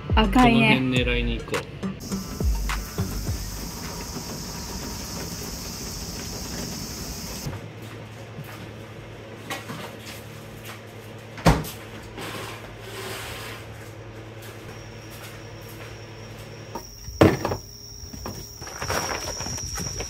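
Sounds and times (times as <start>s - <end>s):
thin high steady tone: 2.0s - 7.5s
steady low hum: 2.0s - 7.6s.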